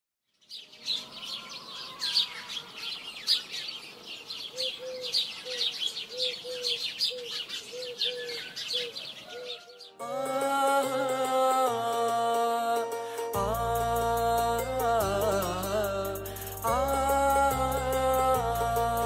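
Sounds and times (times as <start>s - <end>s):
small birds chirping and twittering: 0.2s - 10.0s.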